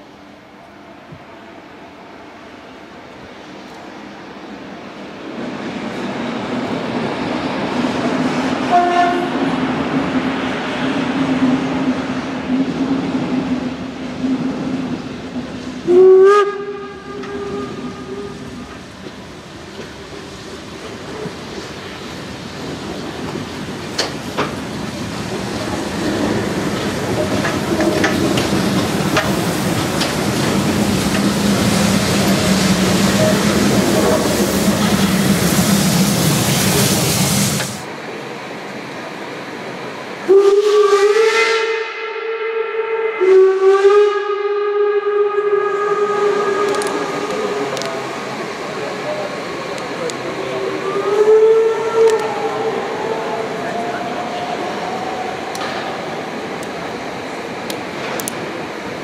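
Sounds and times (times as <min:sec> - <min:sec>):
steam train running on track: 0:00.0 - 0:59.0
steam whistle blasts: 0:08.7 - 0:09.4, 0:15.8 - 0:18.6, 0:33.1 - 0:34.2, 0:40.3 - 0:47.3.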